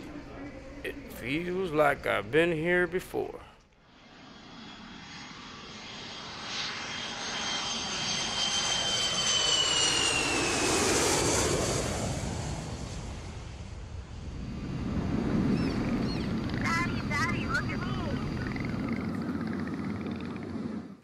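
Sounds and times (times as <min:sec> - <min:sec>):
high jet engine whine: 0:00.0 - 0:21.0
jet airliner taking off: 0:00.0 - 0:21.0.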